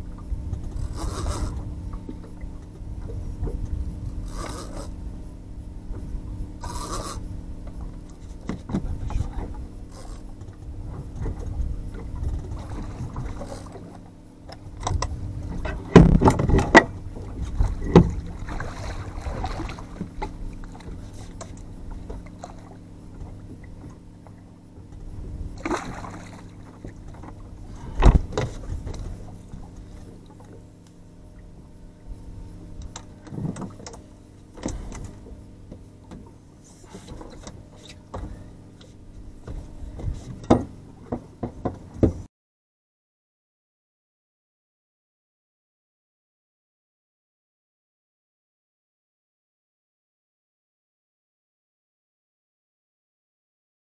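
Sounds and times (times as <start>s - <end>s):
outboard motor idling: 0.0s - 42.3s
knocks against boat: 6.7s - 30.6s, 32.9s - 42.3s
water splashing: 15.8s - 20.8s, 25.6s - 27.2s.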